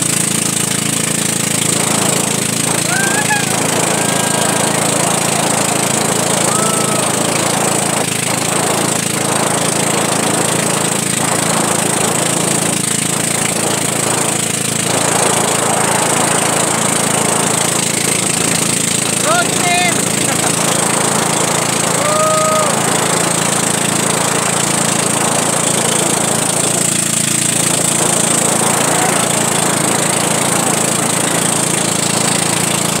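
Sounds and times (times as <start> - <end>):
boat engine running: 0.0 - 33.0
water hissing against hull: 20.0 - 32.7.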